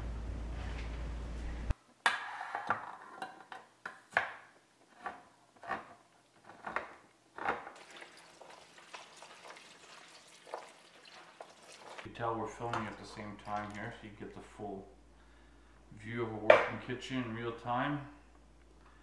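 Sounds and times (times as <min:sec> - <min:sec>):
steady low hum: 0:12.1 - 0:19.0.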